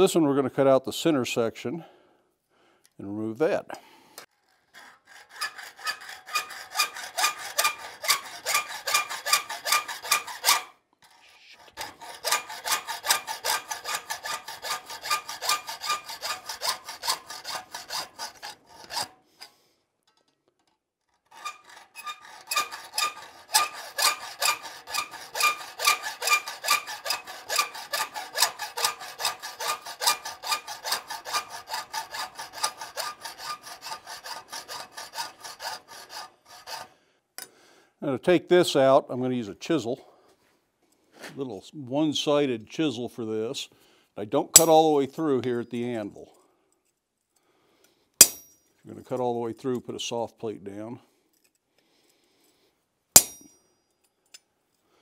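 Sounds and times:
hacksaw cutting metal: 4.2s - 19.6s, 21.1s - 36.9s, 44.5s - 45.0s, 48.2s - 48.5s, 53.2s - 53.5s.

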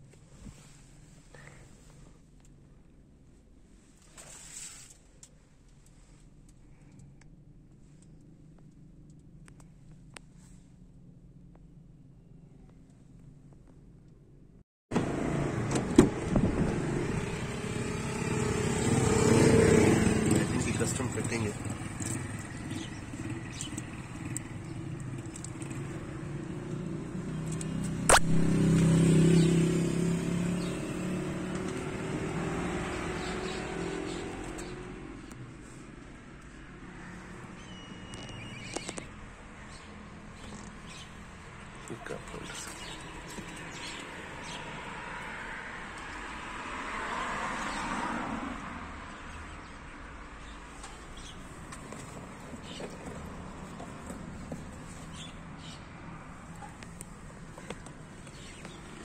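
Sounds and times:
motor vehicle rumble: 0.0s - 59.0s
sharp click: 27.5s - 28.5s.

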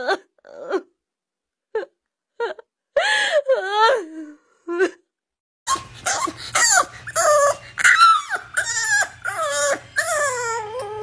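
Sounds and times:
puppy whining: 5.7s - 11.0s.

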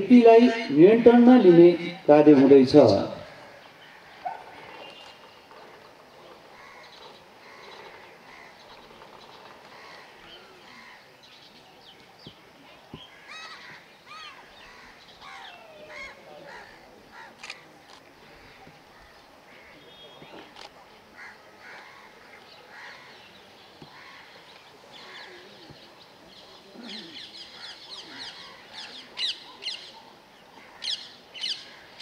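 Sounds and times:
bird calls: 2.9s - 32.0s.

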